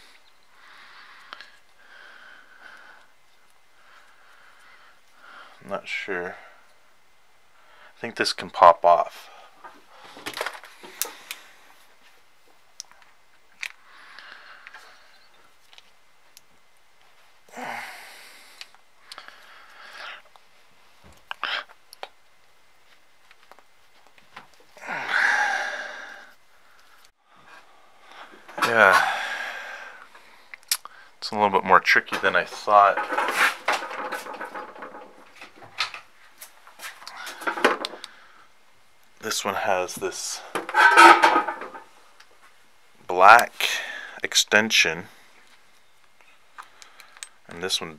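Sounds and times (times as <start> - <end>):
screwdriver scraping metal: 40.6 - 41.8.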